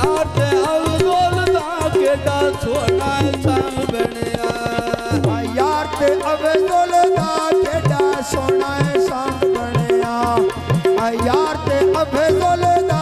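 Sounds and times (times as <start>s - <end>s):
sustained melody line: 0.0s - 8.6s
tabla playing a fast rhythm: 0.0s - 13.0s.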